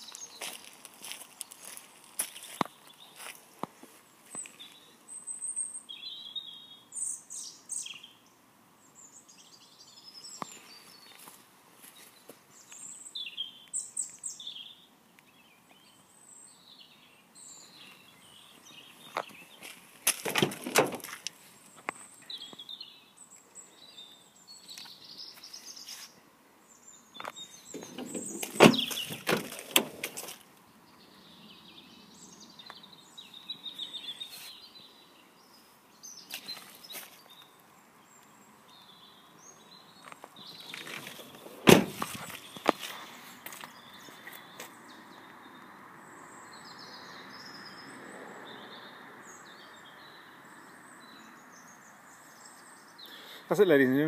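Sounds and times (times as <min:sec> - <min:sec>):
birds chirping and singing: 0:04.3 - 0:54.0
rustling and knocking: 0:27.8 - 0:30.4.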